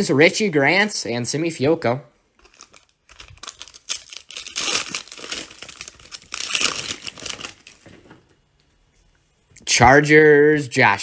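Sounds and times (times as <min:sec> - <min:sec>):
wrapper crinkling and tearing: 0:02.4 - 0:08.2.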